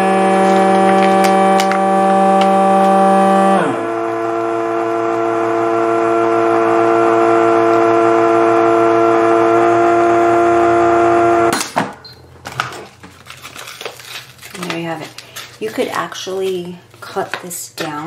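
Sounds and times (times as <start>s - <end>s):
vacuum sealer pump running: 0.0s - 11.5s.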